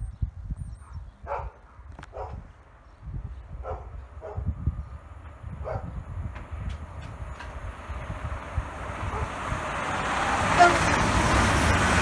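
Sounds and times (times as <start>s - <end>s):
wind rumble on microphone: 0.0s - 12.0s
dog barking: 0.8s - 2.4s, 3.6s - 4.5s, 5.6s - 5.9s, 9.1s - 9.3s.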